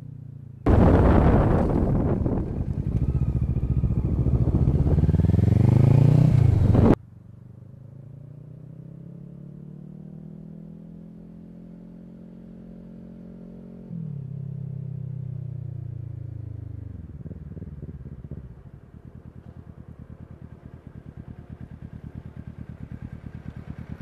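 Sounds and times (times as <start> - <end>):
motorcycle engine accelerating: 0.6 - 24.0
quiet steady engine drone: 16.0 - 24.0.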